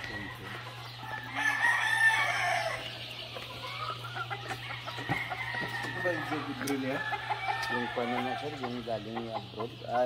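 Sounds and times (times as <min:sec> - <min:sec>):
rooster crowing: 0:00.0 - 0:03.0, 0:04.7 - 0:08.7
fowl calling: 0:00.0 - 0:10.0.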